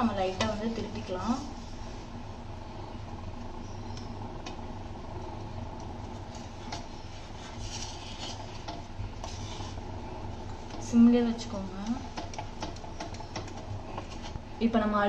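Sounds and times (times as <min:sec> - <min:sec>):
low hum and hiss: 0:00.0 - 0:15.0
spatula scraping on griddle: 0:06.2 - 0:09.9.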